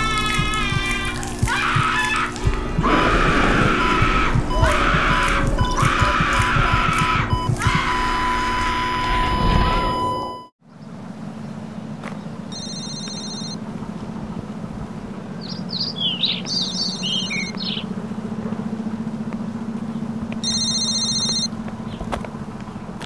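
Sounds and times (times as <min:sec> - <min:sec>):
birds chirping: 0:00.0 - 0:23.0
steady low hum: 0:00.0 - 0:23.0
electronic phone ring: 0:12.5 - 0:13.6, 0:20.4 - 0:21.6.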